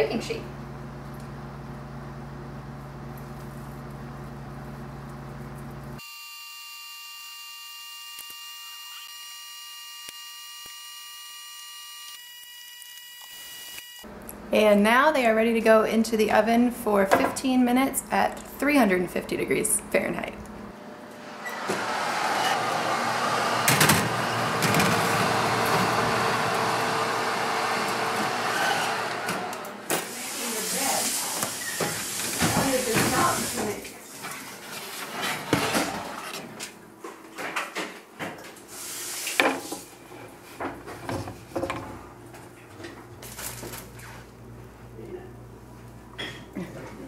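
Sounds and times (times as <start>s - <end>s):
high electrical whine: 6.0s - 14.1s.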